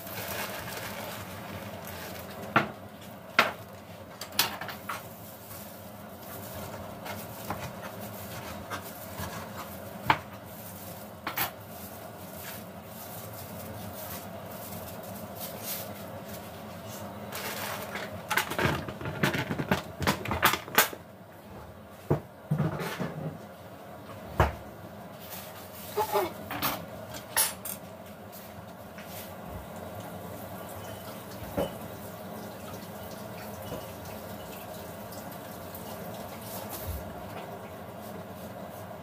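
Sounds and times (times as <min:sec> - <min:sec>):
steady background hum: 0:00.0 - 0:39.0
dishes and pots clinking: 0:26.0 - 0:27.8, 0:30.8 - 0:31.9.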